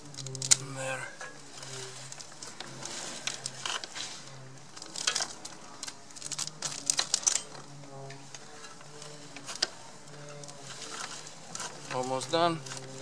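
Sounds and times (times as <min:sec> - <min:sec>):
metal chain links clicking: 0:06.7 - 0:07.6.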